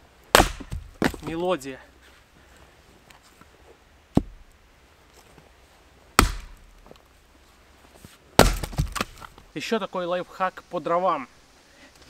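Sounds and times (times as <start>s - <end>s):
wooden chops of splitting firewood: 0.3s - 1.4s, 4.1s - 4.4s, 6.2s - 6.9s, 8.4s - 9.4s.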